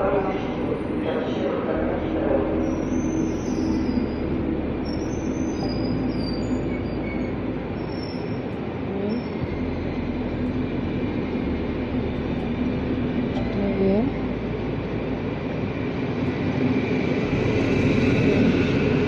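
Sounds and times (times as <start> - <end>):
train wheels rumbling on rail: 0.0 - 19.0
high wheel squeals: 1.8 - 11.6.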